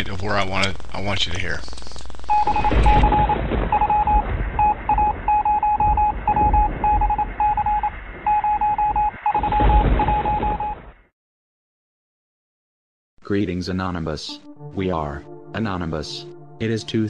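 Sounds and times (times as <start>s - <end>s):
radio static: 0.0s - 4.0s
morse code beeps: 2.3s - 10.8s.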